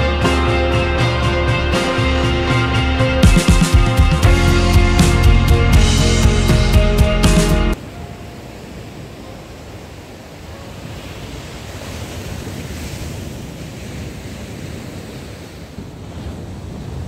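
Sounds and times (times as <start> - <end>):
ocean surf breaking: 0.0 - 17.0
wind rumbling on microphone: 7.8 - 17.0.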